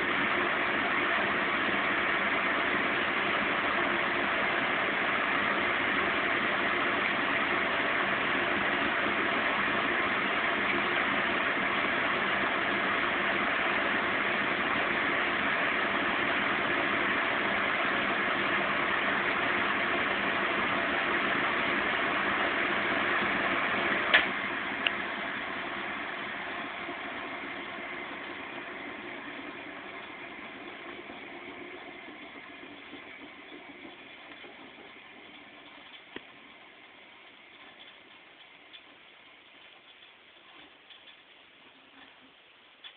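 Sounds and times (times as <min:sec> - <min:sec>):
washing machine spinning: 0:00.0 - 0:41.6.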